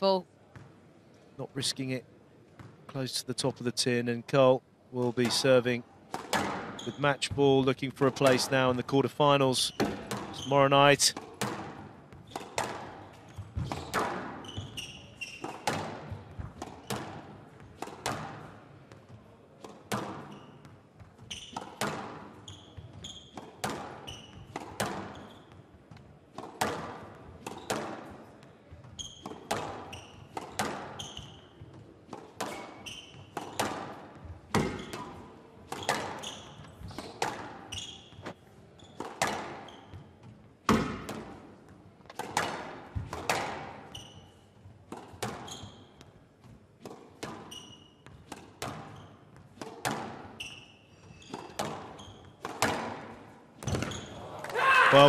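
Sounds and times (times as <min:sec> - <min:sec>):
shoes squeaking on court floor: 0:05.2 - 0:08.8, 0:09.4 - 0:55.0
squash ball cracking off rackets: 0:06.1 - 0:06.8, 0:33.3 - 0:37.6, 0:42.1 - 0:43.8, 0:51.2 - 0:54.6.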